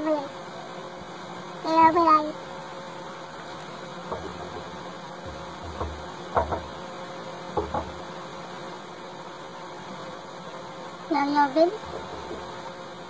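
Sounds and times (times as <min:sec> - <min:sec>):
faint knocks: 0:03.9 - 0:06.9, 0:07.5 - 0:08.1, 0:11.8 - 0:12.7.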